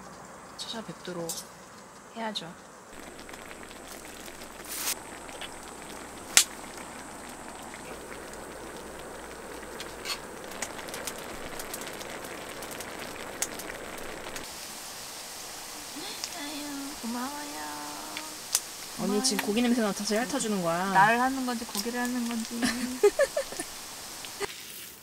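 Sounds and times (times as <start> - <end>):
firewood crackling and popping: 0.0 - 25.0
fire hissing: 2.9 - 25.0.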